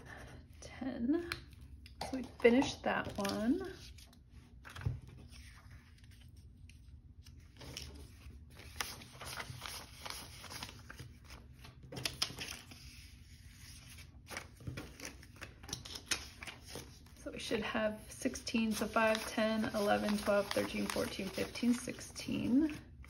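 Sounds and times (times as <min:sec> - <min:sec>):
paper money rustling: 0:07.3 - 0:17.1, 0:18.6 - 0:22.8.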